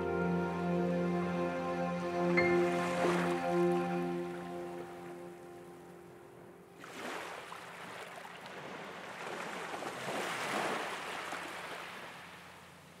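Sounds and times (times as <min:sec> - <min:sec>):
waves washing on shore: 0:02.5 - 0:05.0, 0:06.8 - 0:13.0.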